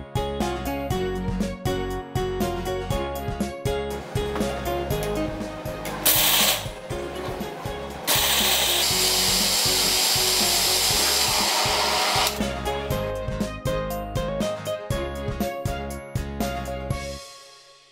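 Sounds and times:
background music: 0.0 - 17.9
blender motor grinding: 8.0 - 12.5.

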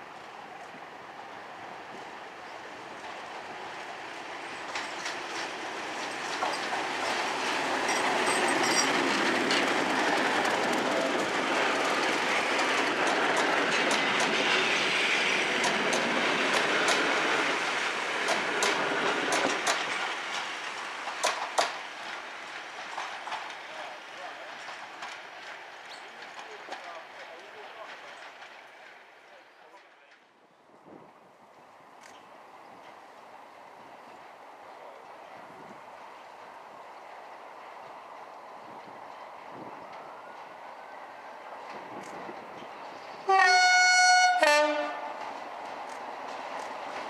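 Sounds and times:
diesel locomotive engine passing: 0.0 - 47.0
train wheels clacking over rail joints: 4.5 - 30.3, 43.5 - 47.0.

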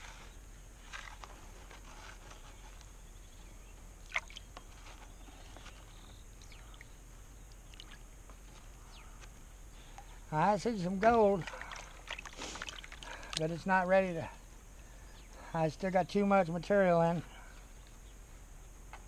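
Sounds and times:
water sloshing in a pan: 11.2 - 13.4.

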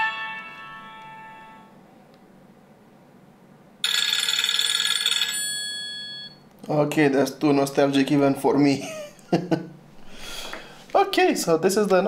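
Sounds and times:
bright dense ringtone: 0.0 - 1.7, 3.8 - 6.4
phone ringtone melody: 0.0 - 1.7, 3.8 - 6.4.

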